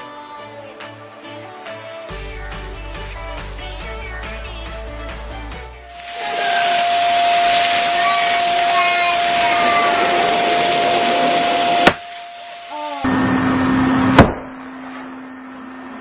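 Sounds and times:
electric air pump whine: 5.9s - 14.1s.

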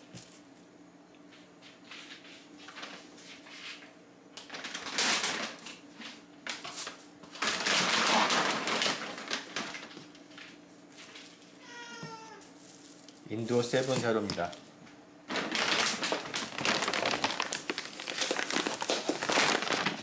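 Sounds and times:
crinkly packaging rustling: 2.7s - 3.0s, 4.4s - 5.8s, 6.4s - 14.6s, 15.3s - 20.0s.

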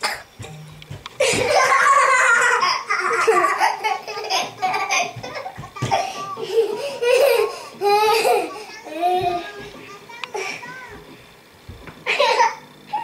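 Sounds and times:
girl laughing loudly: 1.2s - 8.6s, 12.1s - 13.0s.

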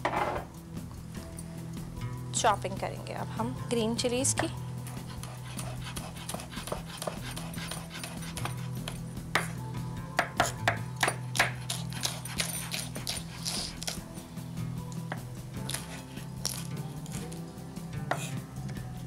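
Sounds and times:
soft background music: 0.0s - 19.0s
knife chopping on wooden board: 5.2s - 9.6s, 10.2s - 14.0s.

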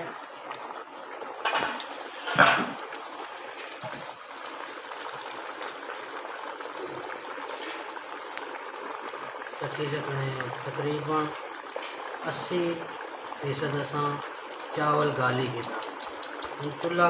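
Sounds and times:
water boiling with bubbling hiss: 0.0s - 17.0s.

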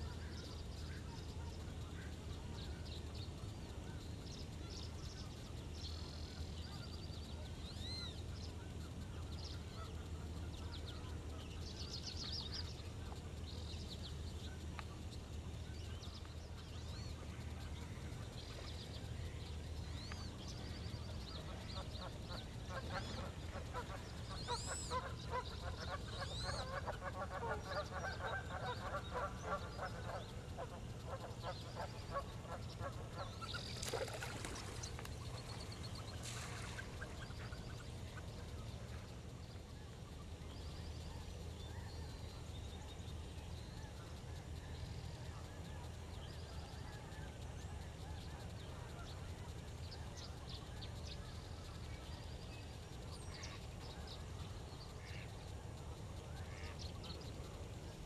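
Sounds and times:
waterfowl honking and chattering: 21.4s - 38.3s, 55.0s - 55.3s.

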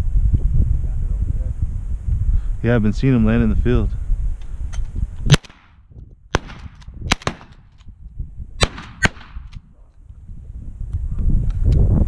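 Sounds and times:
shotgun shots: 5.3s - 7.7s, 8.6s - 9.6s.

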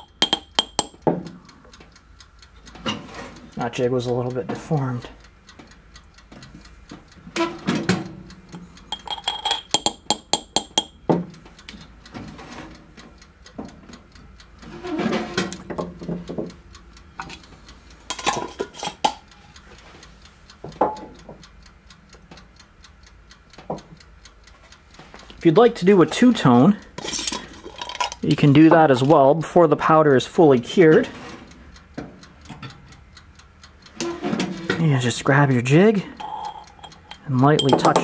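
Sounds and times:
mechanical ticking: 0.0s - 38.0s
glass jar moved: 8.9s - 9.7s, 27.0s - 28.2s, 36.2s - 38.0s
tools clattering on workbench: 9.0s - 10.0s, 27.0s - 28.2s.

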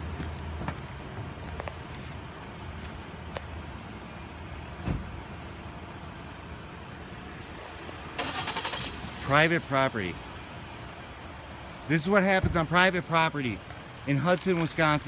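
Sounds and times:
car engine idling: 0.0s - 15.0s
dull thump: 4.8s - 5.2s.

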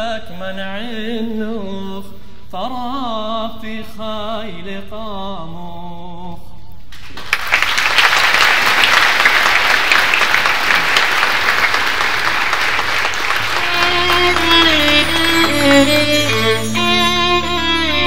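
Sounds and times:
audience applauding: 7.0s - 18.0s
string music with held low note: 13.5s - 18.0s.

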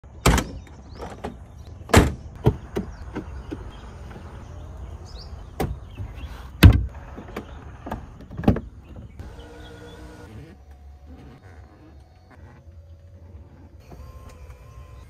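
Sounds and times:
sharp clicks and thunks: 0.2s - 4.2s, 5.6s - 9.2s
electric motor humming: 9.2s - 15.0s.

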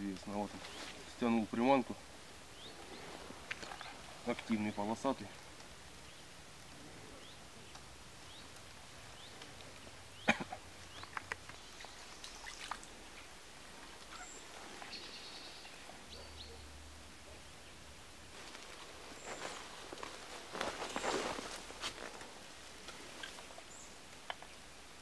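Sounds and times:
faint bird chirps: 2.5s - 5.1s, 7.0s - 17.9s.

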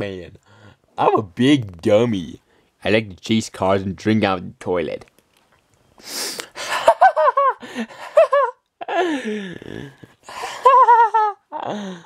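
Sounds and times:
person laughing: 6.6s - 12.0s.

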